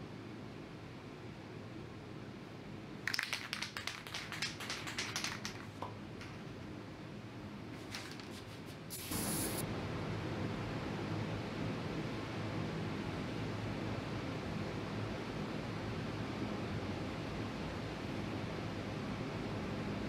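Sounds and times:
aerosol can ball rattling: 0:03.0 - 0:06.6, 0:07.8 - 0:09.6
spray hiss: 0:08.9 - 0:09.6.

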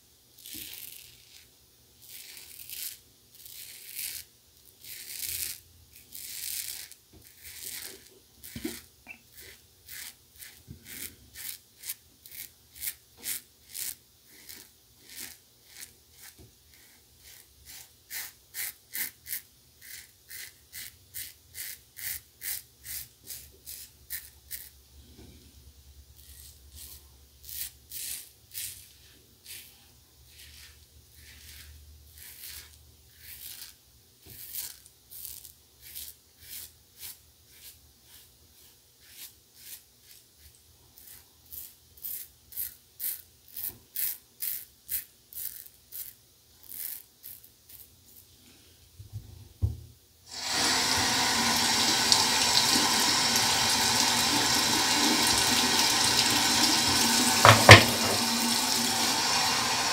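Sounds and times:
razor scraping stubble: 0:00.4 - 0:24.7, 0:26.2 - 0:48.2.

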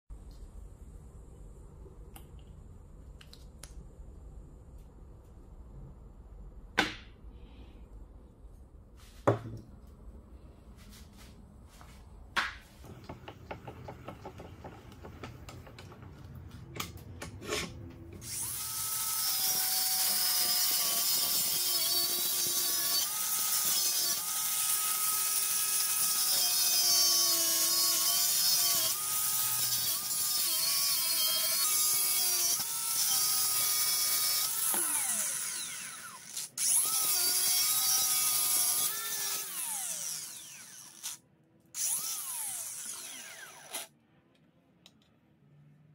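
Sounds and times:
sharp knocks and clicks: 0:12.4 - 0:17.4
angle grinder cutting steel: 0:17.4 - 0:41.2, 0:41.8 - 0:43.9.

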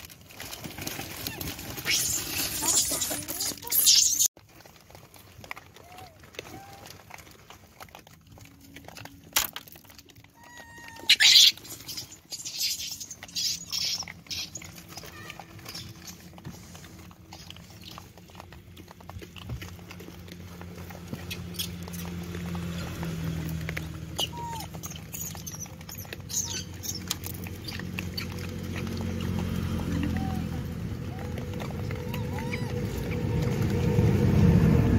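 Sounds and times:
pebbles clicking and scraping: 0:00.0 - 0:34.9
macaques calling: 0:01.3 - 0:04.3, 0:10.4 - 0:16.2, 0:24.1 - 0:33.6
monkey squeaks: 0:01.3 - 0:04.3, 0:10.4 - 0:16.3, 0:24.1 - 0:29.4, 0:32.0 - 0:33.2.

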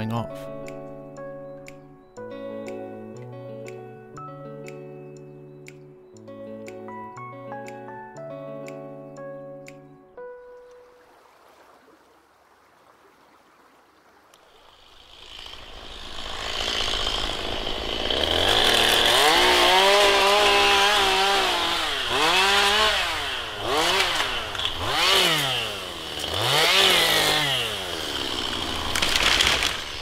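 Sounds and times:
chainsaw revving: 0:14.5 - 0:30.0.

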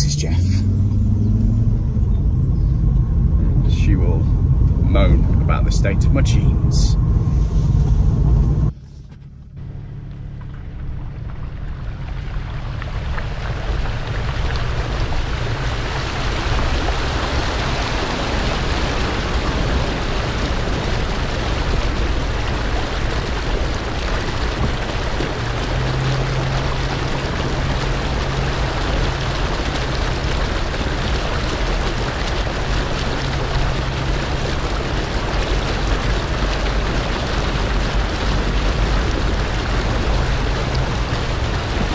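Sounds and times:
car engine rumble: 0:00.0 - 0:41.9
flood water rushing and splashing: 0:10.4 - 0:41.9.

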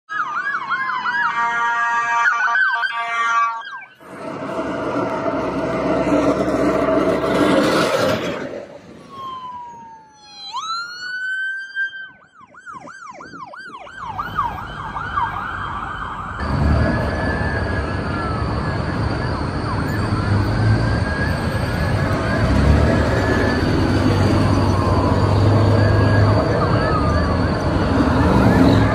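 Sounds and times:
police sirens wailing and yelping: 0:00.1 - 0:28.9
engine and road rumble: 0:03.7 - 0:28.9
truck passing close by: 0:04.0 - 0:09.4, 0:14.1 - 0:28.9.

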